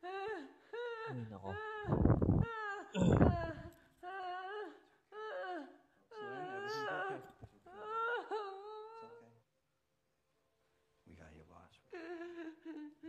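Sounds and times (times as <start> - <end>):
woman crying and moaning: 0.0 - 9.1, 12.0 - 13.0.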